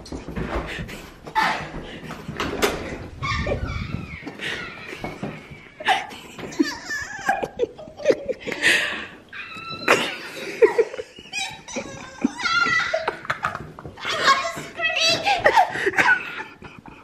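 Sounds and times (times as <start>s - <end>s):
women laughing excitedly: 3.2s - 17.0s.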